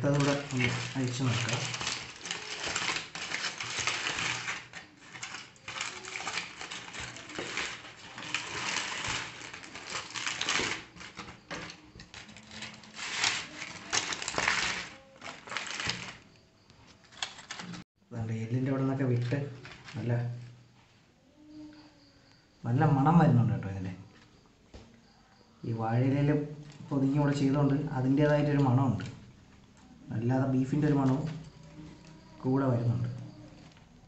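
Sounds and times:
aluminium foil crinkling: 0.0 - 17.8, 19.0 - 20.6, 30.7 - 32.4, 33.0 - 34.0.

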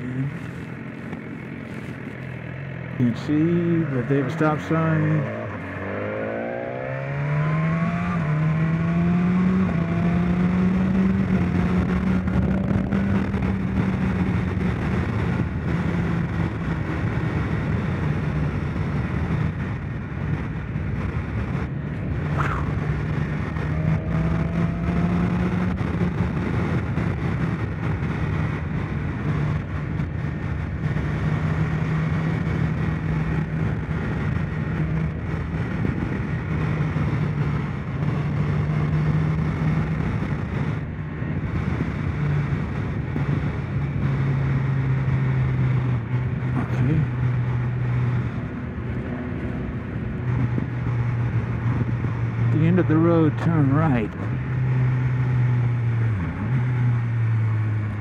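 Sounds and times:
motorcycle engine accelerating: 0.0 - 58.0
wind on microphone: 3.4 - 58.0.

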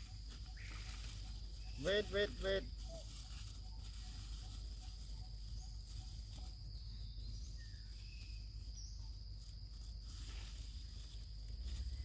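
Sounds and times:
high-pitched insect drone: 0.0 - 12.0.

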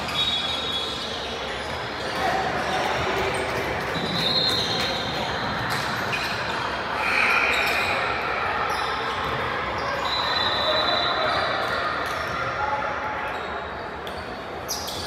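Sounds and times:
sneakers squeaking on floor: 0.0 - 15.0
spectators talking: 0.0 - 15.0.

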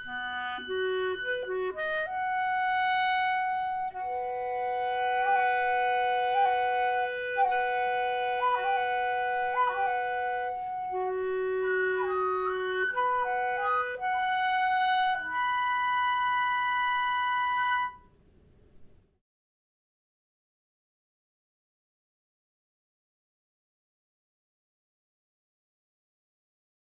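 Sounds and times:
flute and clarinet duet: 0.0 - 18.1.

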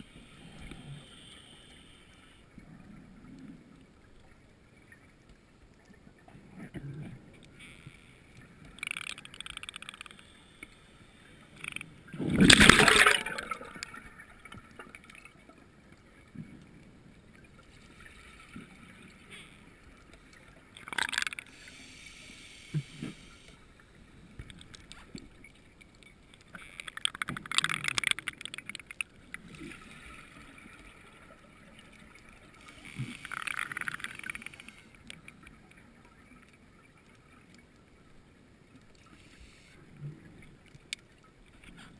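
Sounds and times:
exhaled bubbles gurgling underwater: 11.9 - 22.0.

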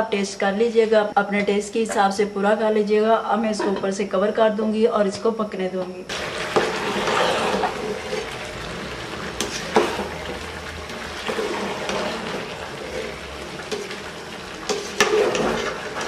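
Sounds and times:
food bubbling in a pot: 6.1 - 16.0.

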